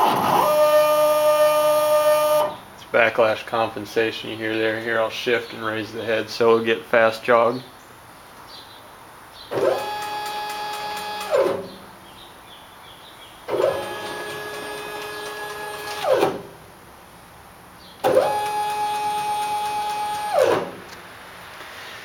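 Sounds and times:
stepper motor whine: 0:00.0 - 0:02.6, 0:09.5 - 0:11.7, 0:13.5 - 0:16.4, 0:18.0 - 0:20.8.

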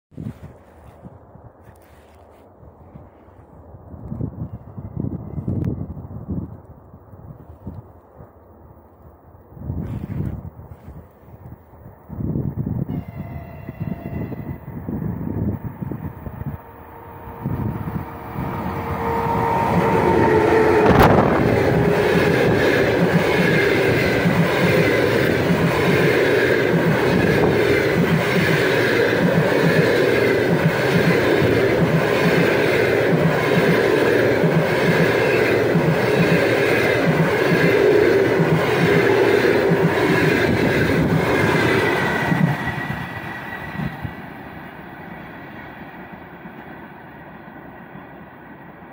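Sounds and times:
train rushing noise: 0:09.6 - 0:48.9
locomotive horn: 0:12.9 - 0:14.9, 0:16.2 - 0:22.6
train passing thump: 0:15.3 - 0:44.8.

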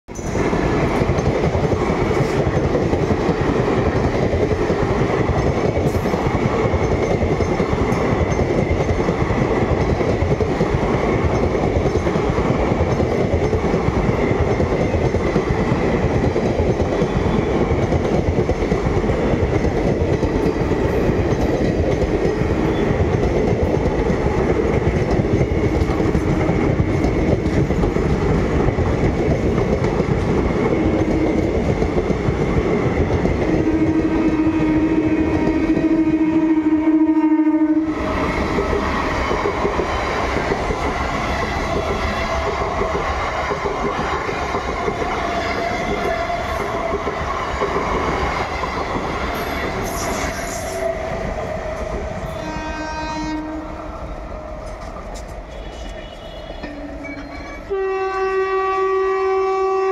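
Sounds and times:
train wheels on rails: 0:00.1 - 0:59.9.

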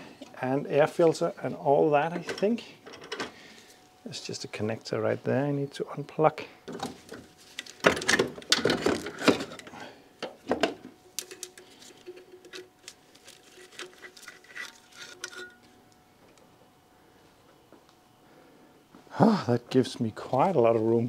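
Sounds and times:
plastic parts rustling and rattling: 0:06.7 - 0:15.7.

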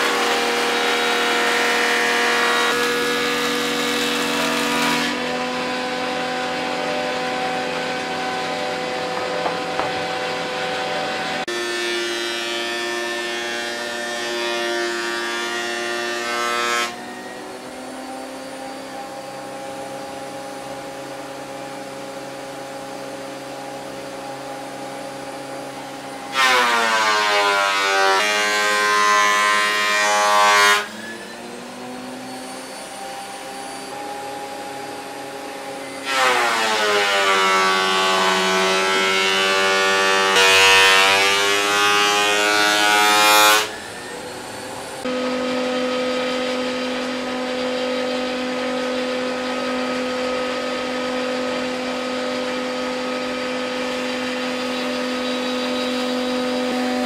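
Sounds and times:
planer cutting board: 0:00.0 - 0:44.3, 0:45.0 - 0:57.0
thickness planer motor whine: 0:00.0 - 0:57.0.

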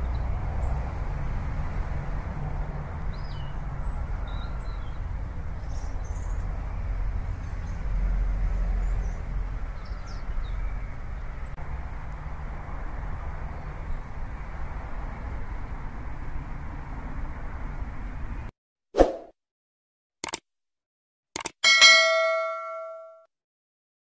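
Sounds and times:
passing cars rumbling: 0:00.0 - 0:18.5.

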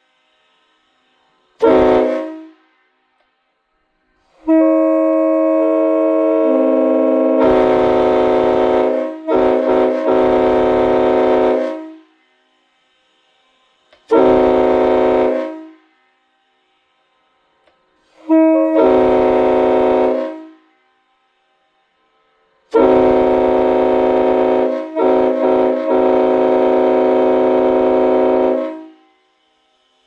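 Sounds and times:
train horn blasts: 0:00.0 - 0:03.2, 0:04.0 - 0:29.8.

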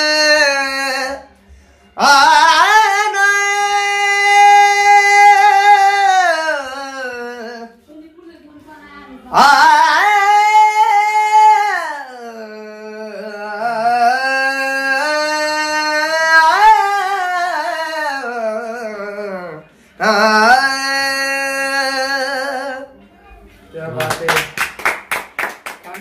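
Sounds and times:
man singing unaccompanied: 0:00.0 - 0:01.4, 0:02.0 - 0:07.8, 0:09.3 - 0:23.0.

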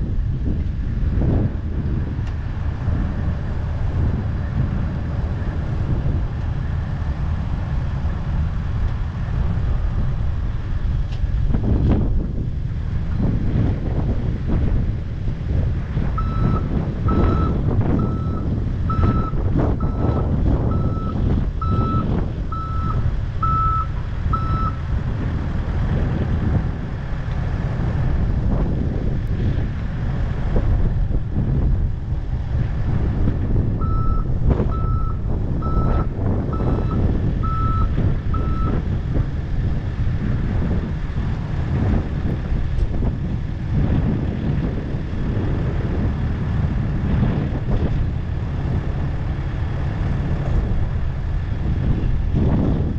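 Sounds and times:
heavy diesel engine rumbling: 0:00.0 - 0:52.9
reversing alarm beeping: 0:16.2 - 0:24.8, 0:33.8 - 0:38.8.

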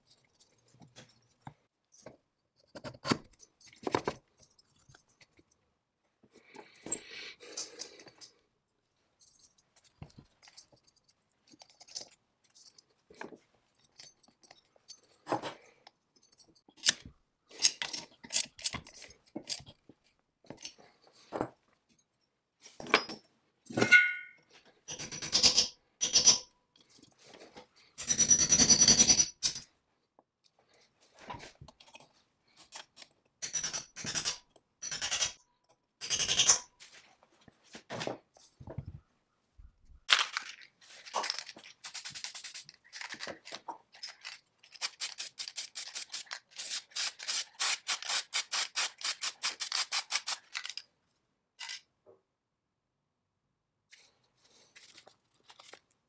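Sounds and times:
metal tools clinking and scraping: 0:09.1 - 0:19.8, 0:22.0 - 0:29.7.

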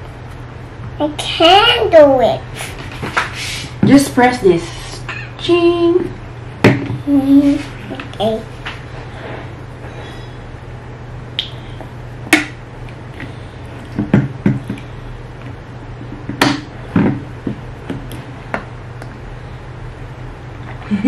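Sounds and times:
steady low hum: 0:00.0 - 0:21.0
plastic cups knocking on table: 0:06.6 - 0:07.0, 0:13.9 - 0:14.8.

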